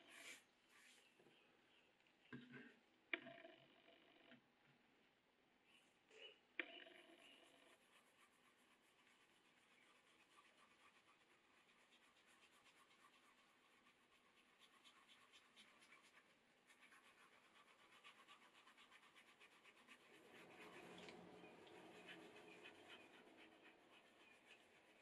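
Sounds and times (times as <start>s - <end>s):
dauber rubbing on leather: 7.8s - 25.0s.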